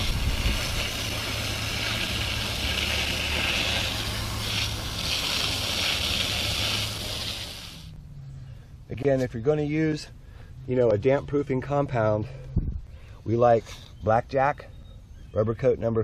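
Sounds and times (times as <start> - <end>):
hose spray hissing on wall: 0.0 - 7.9.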